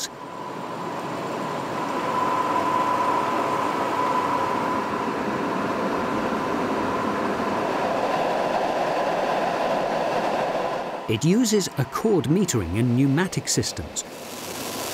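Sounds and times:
constant mechanical whine: 0.0s - 14.9s.

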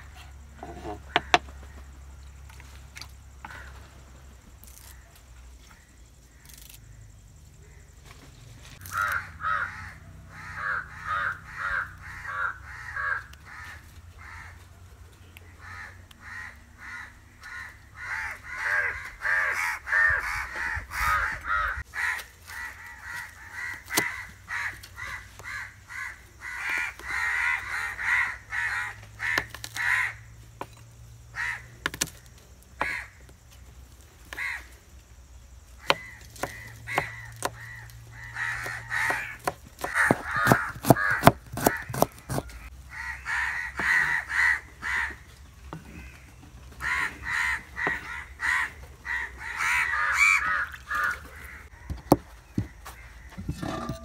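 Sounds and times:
crows cawing: 8.8s - 14.6s, 15.4s - 30.2s, 31.3s - 32.1s, 32.8s - 33.3s, 34.3s - 34.8s, 35.8s - 54.0s
knife chopping on wooden board: 39.0s - 42.5s.

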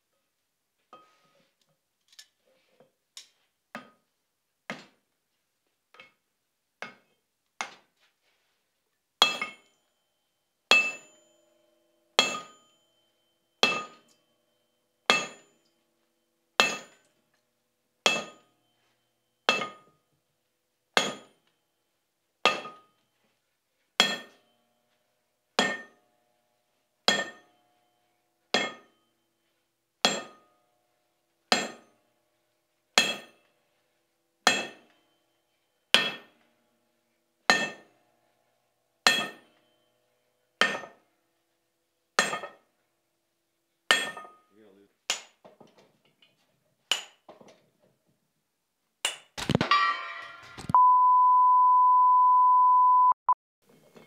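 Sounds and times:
hammer clanking on hot steel: 9.2s - 9.8s, 10.7s - 11.4s, 12.2s - 12.8s, 13.6s - 14.2s, 15.1s - 15.7s, 16.6s - 17.1s, 18.0s - 18.5s, 19.5s - 20.0s, 21.0s - 21.4s, 25.6s - 26.1s, 27.1s - 27.6s, 28.5s - 29.0s, 30.0s - 30.6s, 31.5s - 32.0s, 34.5s - 35.0s, 36.0s - 36.5s, 37.5s - 38.0s, 39.1s - 39.7s, 40.6s - 41.0s, 42.2s - 42.7s, 43.9s - 44.5s, 46.9s - 47.2s, 49.0s - 50.8s.

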